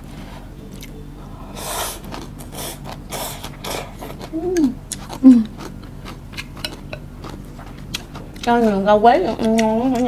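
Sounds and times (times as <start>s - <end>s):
person humming mmm: 0.7s - 5.7s.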